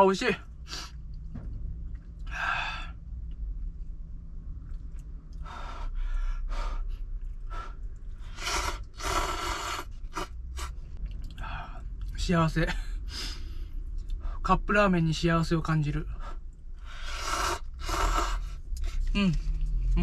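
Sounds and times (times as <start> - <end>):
low steady hum: 0.0 - 20.0
person slurping noodles: 8.3 - 10.8, 17.0 - 18.5.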